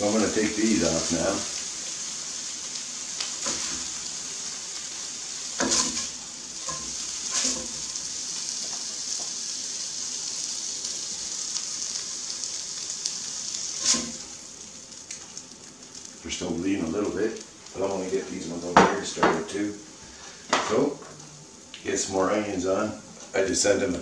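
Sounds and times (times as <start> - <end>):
burgers sizzling in a frying pan: 0.0 - 24.0
spatula scraping and knocking pan: 5.6 - 8.0, 13.8 - 14.3.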